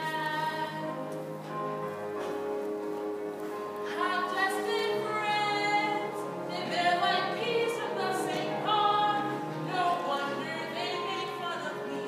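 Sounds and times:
instrumental accompaniment: 0.0 - 12.0.

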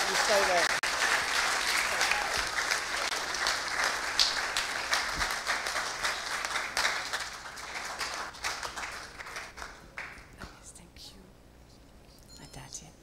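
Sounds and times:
congregation applauding: 0.0 - 10.3.

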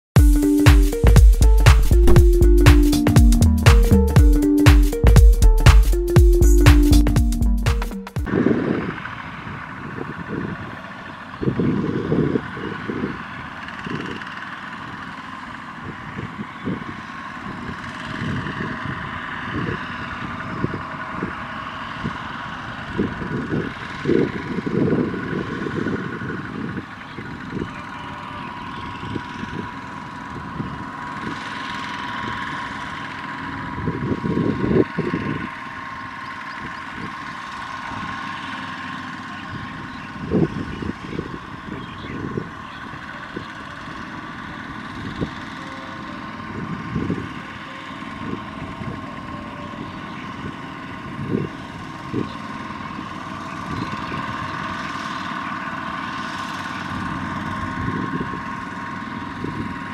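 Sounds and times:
short low thumps: 0.2 - 8.3
tractor diesel engines running: 8.2 - 59.9.

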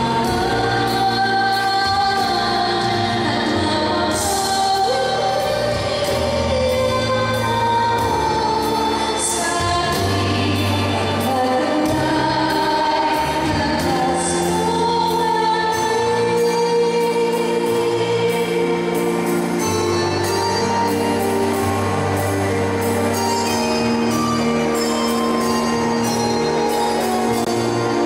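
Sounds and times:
woman singing into microphone: 0.0 - 22.4
instrumental accompaniment: 0.0 - 28.0.

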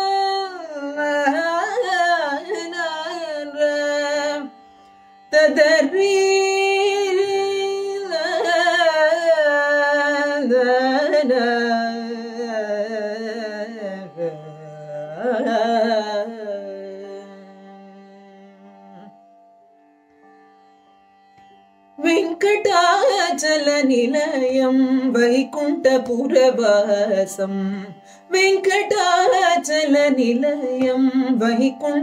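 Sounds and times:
woman singing wordless notes: 22.0 - 32.0.

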